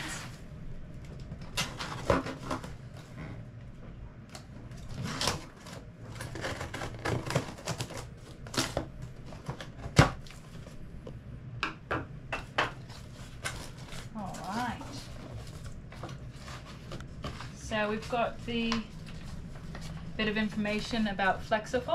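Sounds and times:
cardboard rustling and scraping: 1.4s - 3.4s, 4.7s - 10.8s, 12.8s - 20.6s
scissors cutting cardboard: 4.8s - 8.8s.

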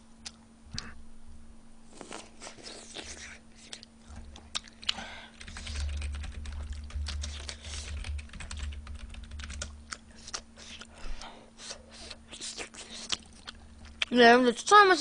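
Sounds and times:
chewing with full mouth: 1.9s - 8.0s, 12.3s - 14.1s
keyboard typing clicks: 5.4s - 9.8s.

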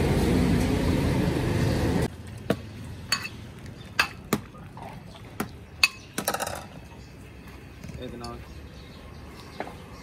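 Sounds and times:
metal ladle clinking on pot: 3.1s - 3.4s.

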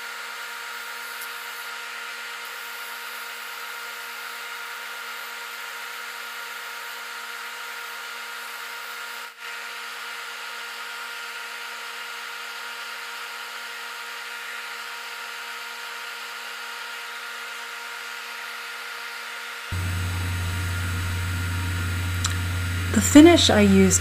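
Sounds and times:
wood lathe motor humming: 19.7s - 24.0s
even hiss: 19.8s - 24.0s.

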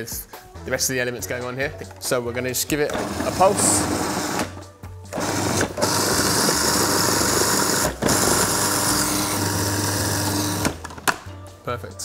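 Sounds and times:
food processor motor pulsing: 2.9s - 4.5s, 5.1s - 10.8s.

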